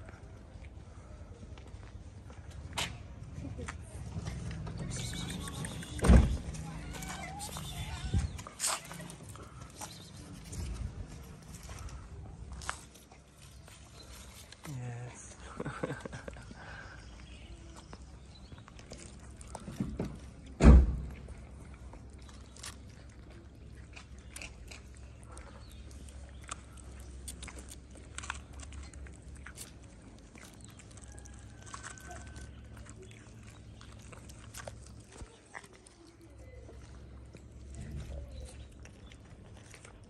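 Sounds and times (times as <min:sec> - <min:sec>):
cats chewing wet food: 0:00.0 - 0:03.3, 0:04.0 - 0:40.0
loud thump: 0:20.6 - 0:21.0.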